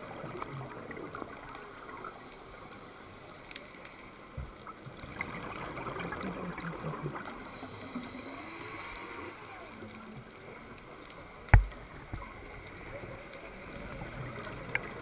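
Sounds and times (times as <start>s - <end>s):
underwater clicks and crackles: 0.0s - 15.0s
underwater watery hiss: 0.0s - 15.0s.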